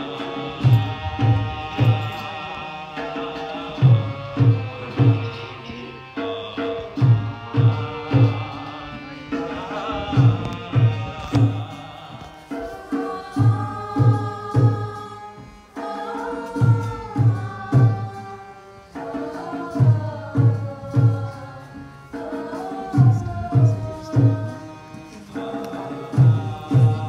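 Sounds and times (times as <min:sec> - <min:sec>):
drum beating: 0:00.0 - 0:05.4, 0:06.2 - 0:15.0, 0:22.2 - 0:27.0
person chanting a melody: 0:00.0 - 0:27.0.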